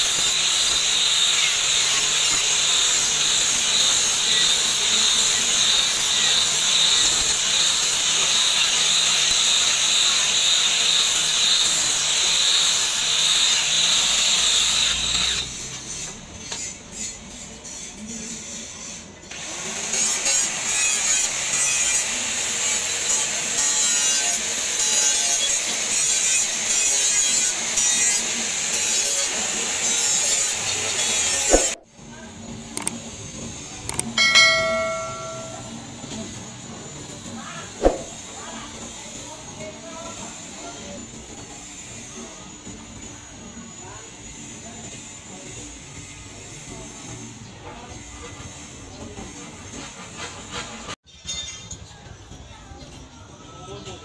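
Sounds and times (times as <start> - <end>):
angle grinder grinding steel: 0.0 - 16.0, 33.9 - 35.7.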